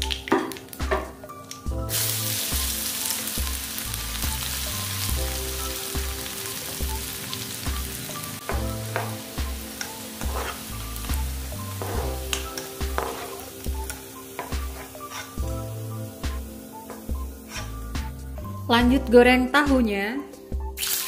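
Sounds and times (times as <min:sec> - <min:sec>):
oil sizzling in a wok: 0:00.0 - 0:18.6, 0:20.8 - 0:21.0
spatula scrapes and taps: 0:10.2 - 0:10.6, 0:11.8 - 0:13.4, 0:14.4 - 0:15.4.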